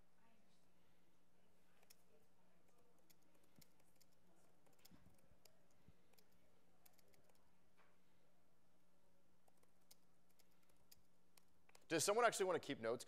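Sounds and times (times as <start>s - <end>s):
laptop keyboard typing: 1.8s - 7.5s, 9.4s - 12.1s.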